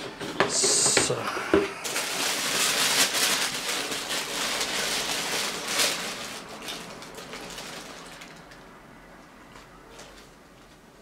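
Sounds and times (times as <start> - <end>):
tissue paper crinkling: 1.8 - 8.6.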